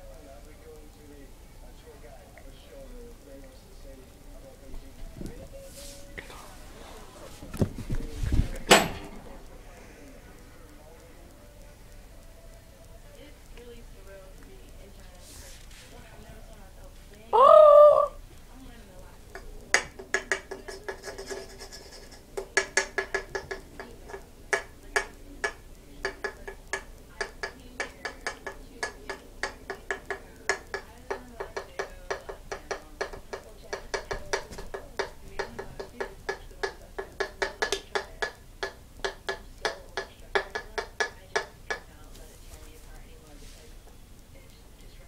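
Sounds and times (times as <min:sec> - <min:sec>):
light tapping clicks: 0:19.3 - 0:42.2.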